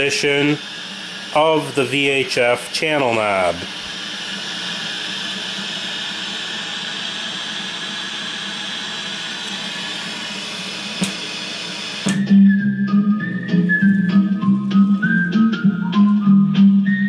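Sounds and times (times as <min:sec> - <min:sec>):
sharp click: 0:11.0 - 0:11.2, 0:12.0 - 0:12.2
television program music: 0:12.2 - 0:17.0.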